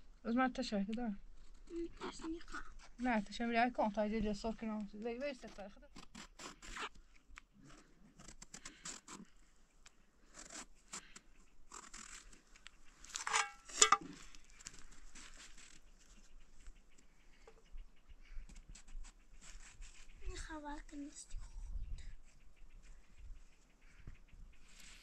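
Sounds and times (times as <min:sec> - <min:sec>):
knife scraping vegetable: 0:10.3 - 0:12.4, 0:18.7 - 0:20.2.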